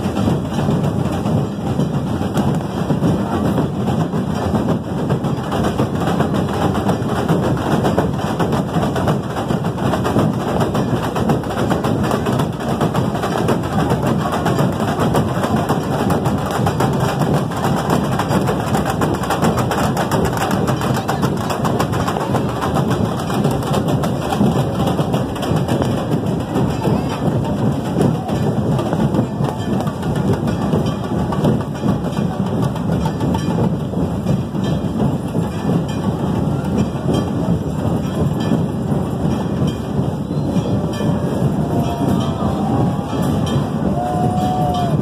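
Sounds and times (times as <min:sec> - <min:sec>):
crowd hubbub: 0:00.0 - 0:45.0
drum band fast rhythm: 0:00.0 - 0:45.0.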